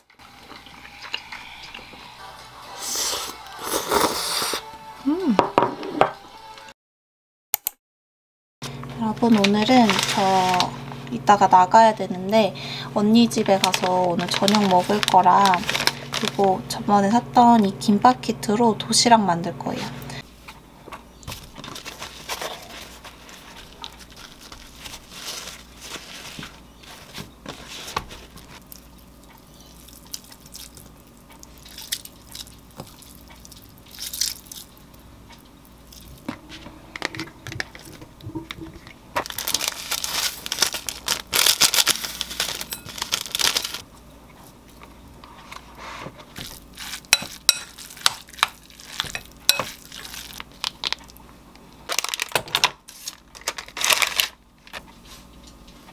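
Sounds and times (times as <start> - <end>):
paper towel rustling: 9.3 - 10.8, 13.2 - 16.5, 21.3 - 28.7.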